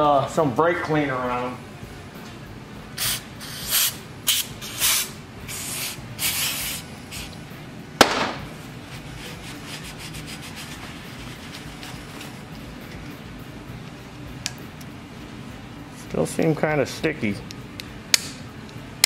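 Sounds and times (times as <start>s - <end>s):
aerosol spray hissing: 3.0s - 7.3s
rag rubbing: 8.9s - 12.5s.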